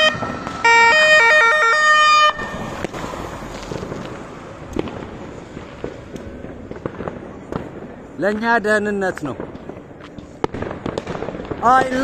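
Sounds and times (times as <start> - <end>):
police siren blasts: 0.0 - 4.0
firework bangs: 0.0 - 12.0
street noise: 0.0 - 12.0.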